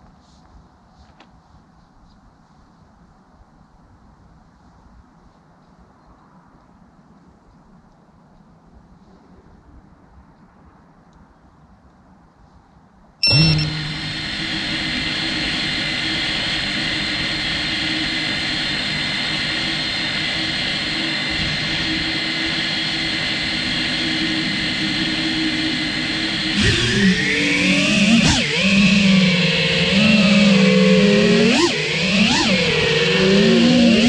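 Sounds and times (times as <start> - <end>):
quadcopter motors whining: 13.2 - 34.0.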